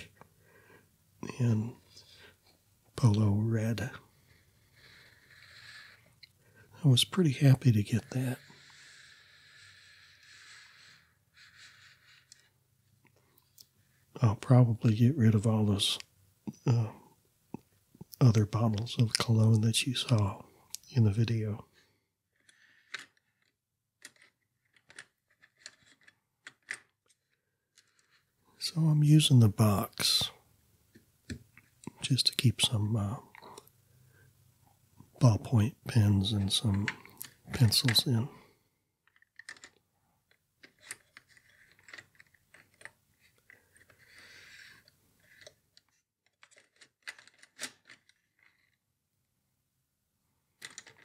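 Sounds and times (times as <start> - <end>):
pens clicking and clattering: 22.5 - 28.3, 39.1 - 48.8, 50.6 - 51.0.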